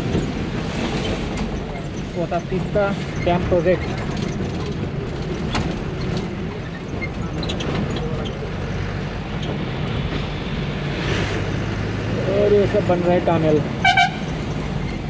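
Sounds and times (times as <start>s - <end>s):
knocks and rattles: 0.0s - 10.4s
diesel bus engine running: 0.0s - 15.0s
road and tyre noise: 0.0s - 15.0s.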